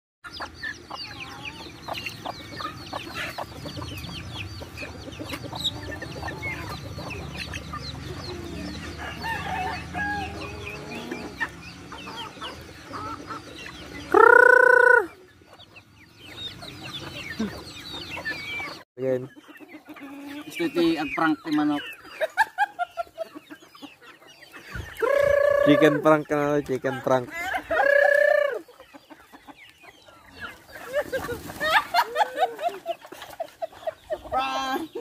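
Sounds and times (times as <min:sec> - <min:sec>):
chickens clucking: 0:00.2 - 0:35.0
chicks peeping: 0:00.2 - 0:35.0
young rooster crowing: 0:08.4 - 0:11.2.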